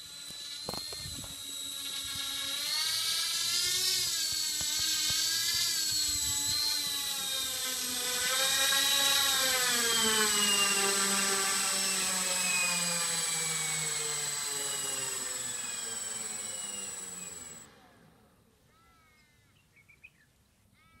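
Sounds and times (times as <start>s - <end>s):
electric motors and propellers winding down: 0.0s - 18.2s
high steady whine: 9.6s - 17.7s
faint chirps: 15.5s - 17.6s.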